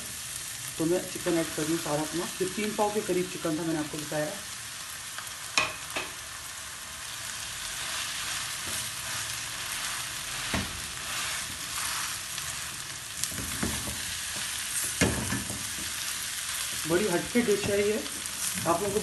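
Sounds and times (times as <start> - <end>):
food sizzling in a frying pan: 0.0 - 19.0.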